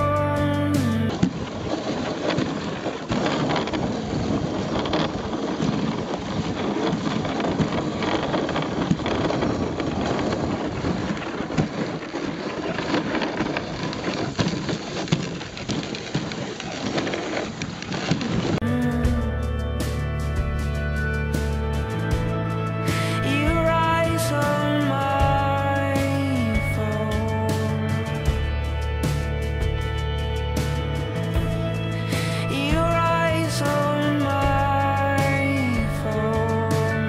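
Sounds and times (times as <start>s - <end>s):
sled rattling: 0.0s - 37.0s
sled runners scraping on snow: 1.2s - 18.6s.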